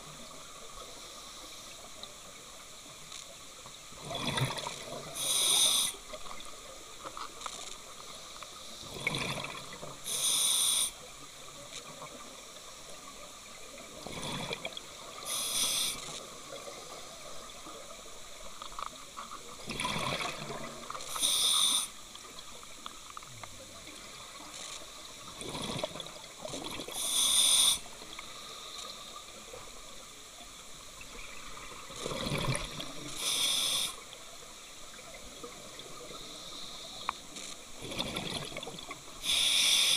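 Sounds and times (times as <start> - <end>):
regulator air hiss: 5.1 - 6.0, 10.1 - 11.0, 15.2 - 16.2, 21.1 - 22.0, 27.0 - 29.2, 33.1 - 34.0, 39.2 - 39.9.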